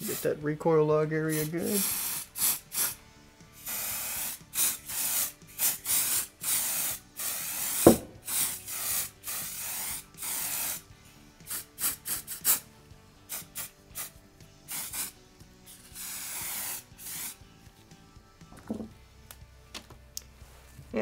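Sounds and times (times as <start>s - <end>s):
aerosol can spraying: 0.0s - 0.4s, 1.3s - 17.6s
sharp knock: 7.9s - 8.2s.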